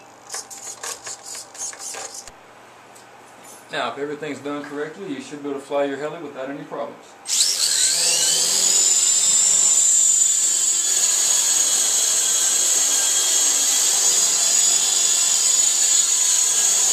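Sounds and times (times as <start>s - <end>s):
rc helicopter motor whine: 7.3s - 16.9s.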